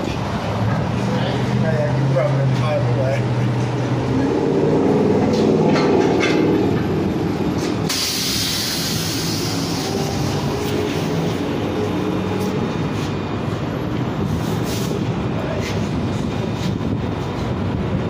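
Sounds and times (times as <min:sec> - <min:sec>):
compressed air hissing: 0:07.8 - 0:11.0.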